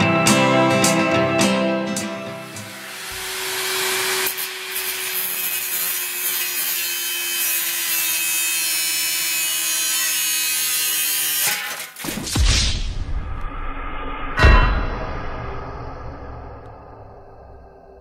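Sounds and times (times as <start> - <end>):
angle grinder cutting steel: 2.0 - 12.0.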